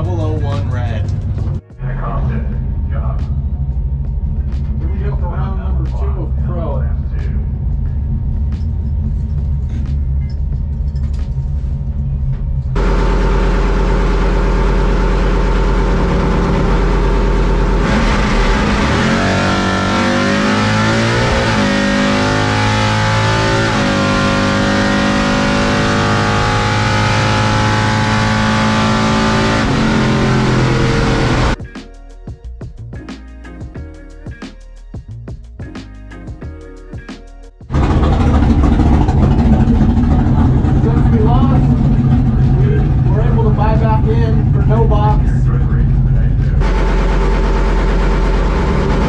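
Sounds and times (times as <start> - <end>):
race car engine revving: 12.7 - 31.6, 37.7 - 49.0.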